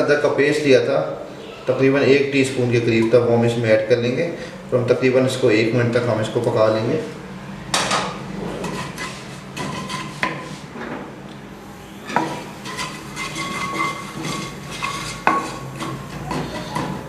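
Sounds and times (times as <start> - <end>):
spatula stirring in hot oil: 8.5 - 10.7, 12.0 - 17.0.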